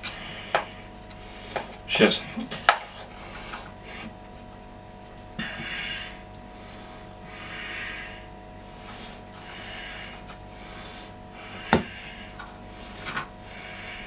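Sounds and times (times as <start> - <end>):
person breathing heavily through nose: 0.0 - 1.8, 5.4 - 14.0.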